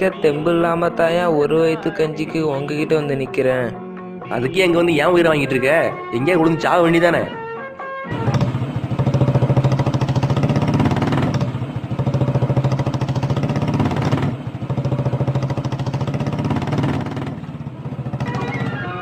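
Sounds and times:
engine running with pulsing beat: 8.1 - 19.0.

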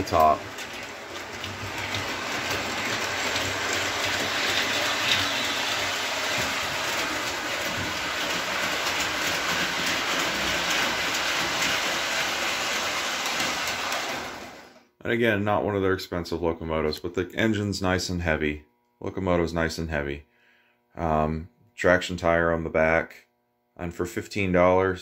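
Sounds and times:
model train motor whirring: 0.0 - 14.8.

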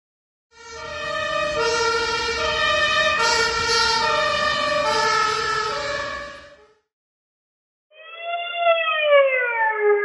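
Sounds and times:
fire truck siren two-tone: 0.5 - 6.9, 7.9 - 10.0.

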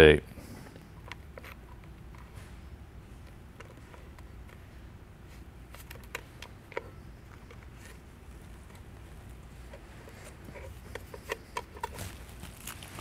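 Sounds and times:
low room hum: 0.0 - 13.0
tape crackling: 5.4 - 13.0.

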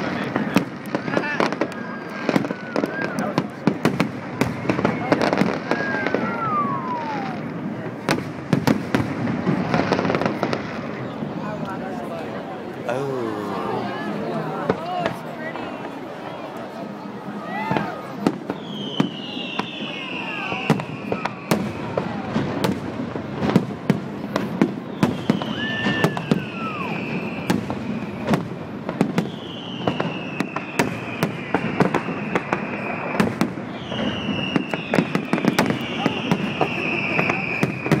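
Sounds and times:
fireworks bangs and pops: 0.0 - 12.0, 17.3 - 38.0
fireworks whistles sliding down: 18.4 - 22.1, 24.8 - 28.4, 29.2 - 38.0.

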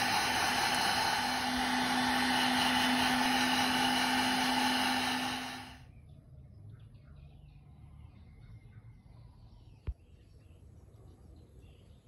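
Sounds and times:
hair dryer running: 0.0 - 5.8.

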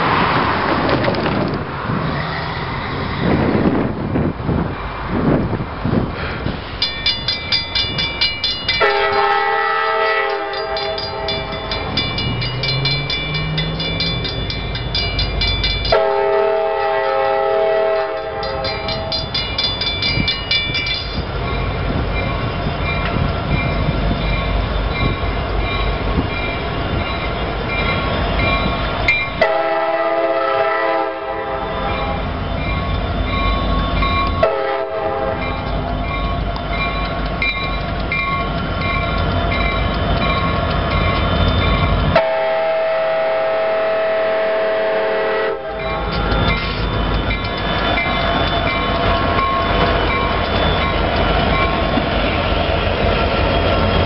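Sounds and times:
diesel engines rumbling: 0.0 - 54.0
crossing bell ringing: 6.6 - 44.5, 45.1 - 54.0
locomotive horn blasts: 8.8 - 11.7, 15.9 - 19.2, 29.4 - 32.2, 34.4 - 35.6, 42.1 - 46.0.

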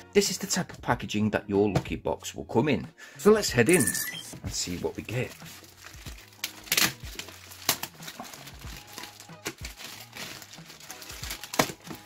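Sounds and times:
plastic bag crinkling: 4.6 - 12.0
plastic bag ripping: 4.6 - 12.0.

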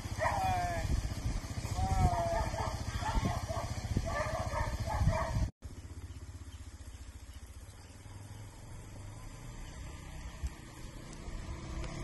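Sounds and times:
utility vehicle engine idling: 0.0 - 12.0
dog barking: 0.1 - 0.6, 2.0 - 5.5.

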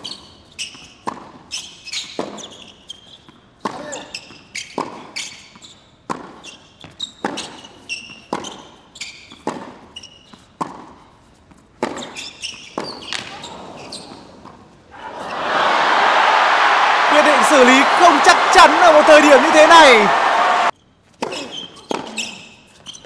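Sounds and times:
shoes squeaking on court: 0.0 - 14.8, 21.0 - 23.0
racket hitting ball: 9.3 - 9.8.

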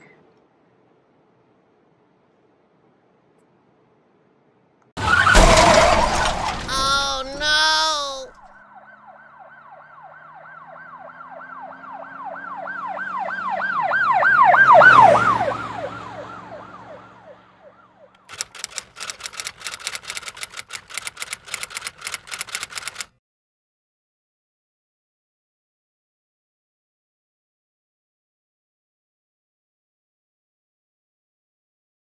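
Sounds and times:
emergency vehicle siren wailing: 5.0 - 7.0, 8.6 - 18.1
typing clicks: 18.2 - 23.1.

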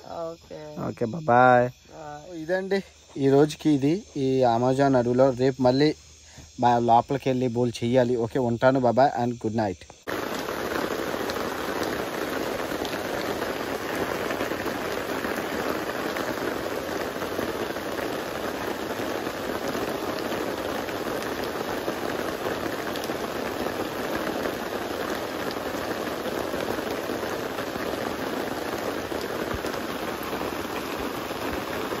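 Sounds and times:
steady rain hiss: 0.0 - 32.0
raindrop ticks: 9.8 - 32.0.

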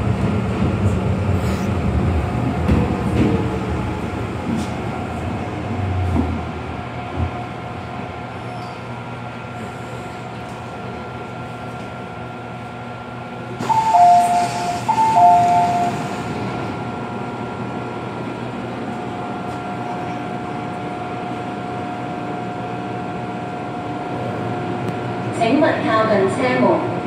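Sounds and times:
stationary train hum: 0.0 - 27.0
two-tone door chime: 13.6 - 16.1.

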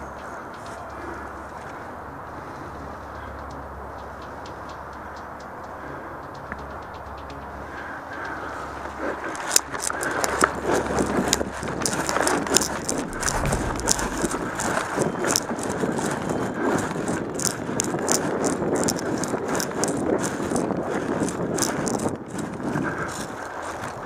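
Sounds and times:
footsteps crunching dry leaves: 12.9 - 14.8.

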